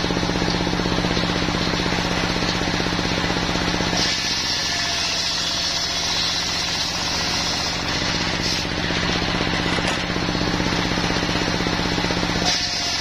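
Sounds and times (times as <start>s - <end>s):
saw blade cutting log: 3.9s - 10.1s, 12.1s - 13.0s
diesel engine thudding: 8.2s - 12.4s.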